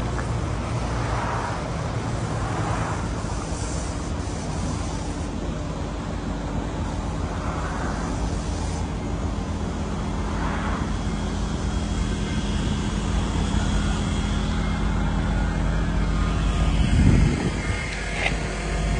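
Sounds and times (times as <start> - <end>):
outdoor background noise: 0.0 - 18.9
vehicle engine droning: 0.0 - 18.9.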